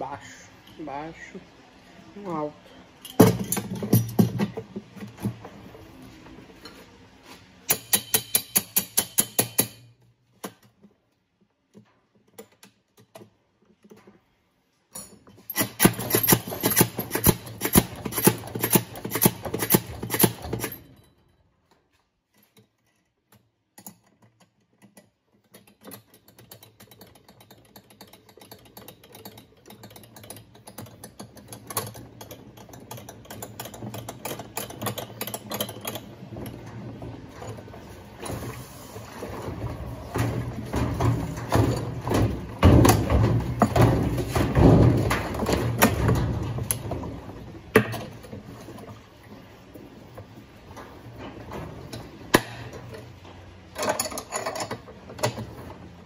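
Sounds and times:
hand tools clicking and rattling: 0:03.0 - 0:05.6, 0:07.6 - 0:11.0, 0:14.9 - 0:38.6, 0:52.3 - 0:55.8.

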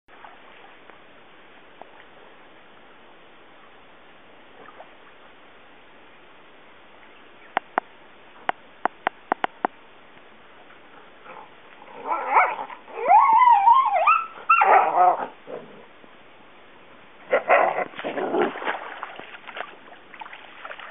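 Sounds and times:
dog whining and yelping: 0:12.0 - 0:15.3.

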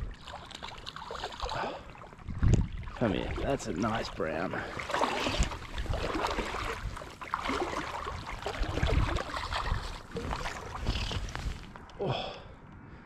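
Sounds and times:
fish splashing at water surface: 0:04.6 - 0:11.7.

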